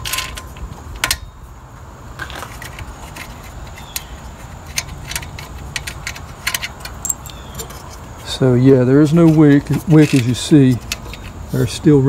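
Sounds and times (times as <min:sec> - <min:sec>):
metal parts clicking and tapping: 0:02.6 - 0:08.0, 0:09.0 - 0:11.4.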